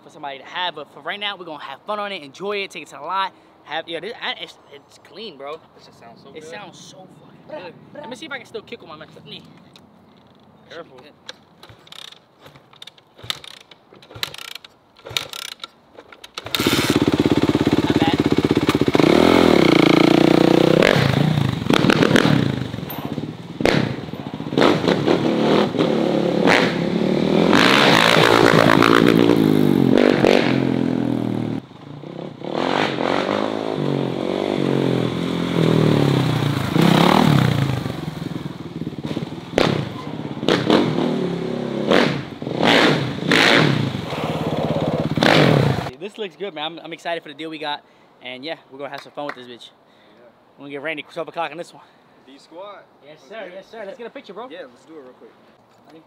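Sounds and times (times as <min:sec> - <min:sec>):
dirt bike engine revving: 0:16.4 - 0:45.9.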